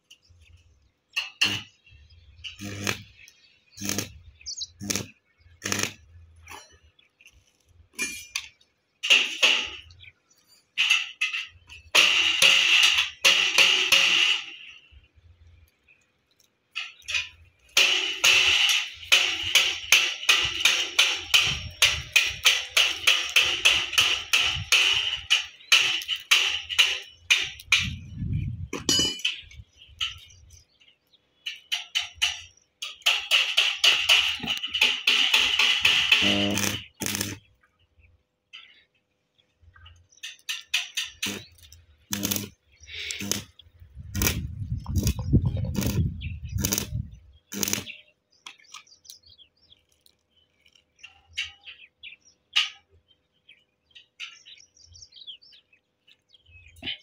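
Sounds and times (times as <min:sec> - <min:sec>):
welding arc crackling: 0:01.2 - 0:01.8, 0:02.4 - 0:06.5, 0:11.9 - 0:14.8, 0:16.3 - 0:28.6, 0:31.5 - 0:37.5, 0:40.3 - 0:48.0
welder humming low: 0:02.5 - 0:06.1, 0:35.9 - 0:37.4, 0:41.2 - 0:47.9.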